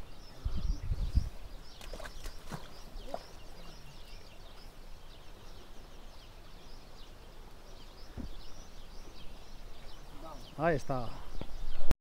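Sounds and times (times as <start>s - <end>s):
small birds chirping: 0.0s - 11.9s
soft low thump: 8.1s - 8.5s.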